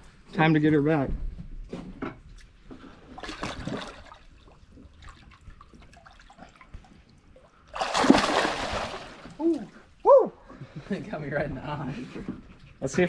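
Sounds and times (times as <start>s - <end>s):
water trickling and dripping: 4.0s - 7.8s
loud fish splash: 7.8s - 9.4s.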